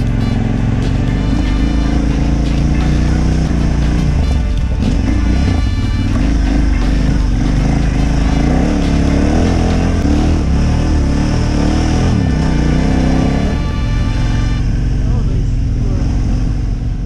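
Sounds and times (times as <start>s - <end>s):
dirt bike engine revving: 0.0s - 17.0s.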